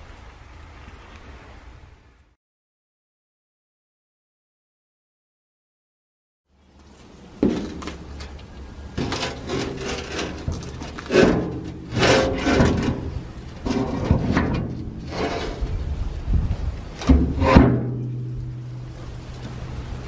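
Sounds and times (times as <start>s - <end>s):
metal pan scraping and clunking: 9.0s - 15.9s, 17.0s - 19.0s.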